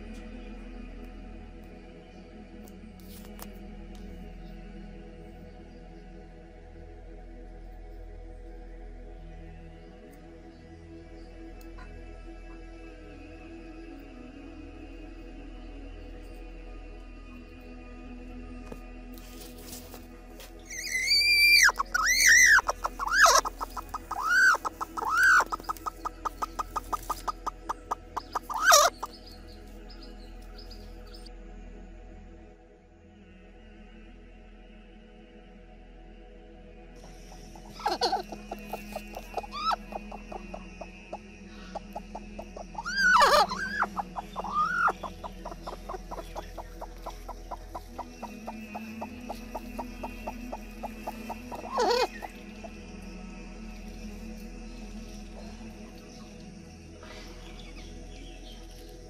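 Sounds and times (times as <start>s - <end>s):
hen squawking: 20.7s - 29.2s, 37.6s - 40.9s, 41.5s - 52.6s
hen clucking rapidly: 20.7s - 29.4s, 37.4s - 52.8s.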